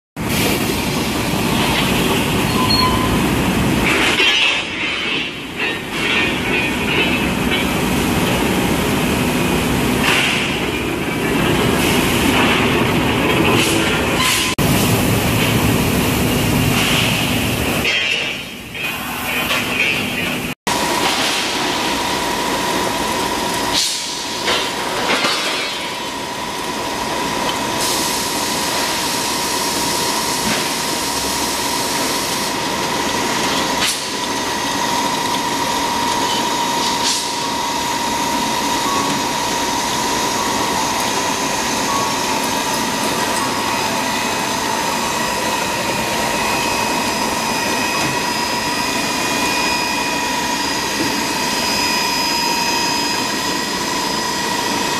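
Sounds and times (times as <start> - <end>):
machine whining: 20.2 - 54.9.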